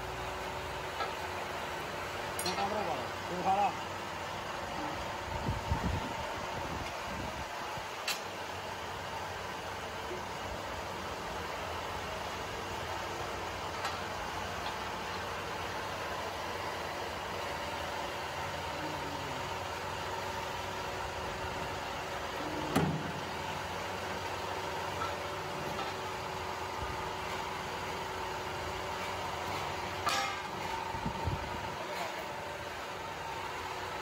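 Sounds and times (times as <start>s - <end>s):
hydraulic press motor humming: 21.2s - 28.0s.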